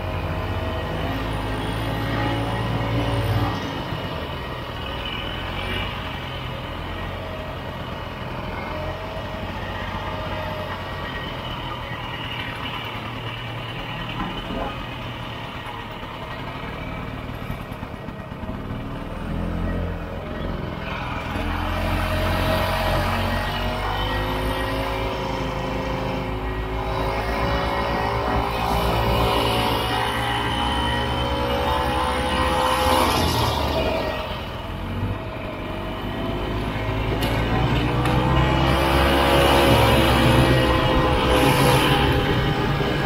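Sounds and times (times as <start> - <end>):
snowmobile engine running: 21.2 - 43.0.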